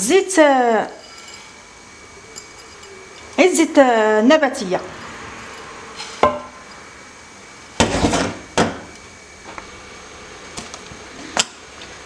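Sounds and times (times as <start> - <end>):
dish scraping: 1.0 - 1.6, 4.8 - 6.9, 7.8 - 8.7
dishes clinking: 1.0 - 1.6, 2.3 - 3.4, 5.4 - 6.8
dish knocking: 6.2 - 6.6.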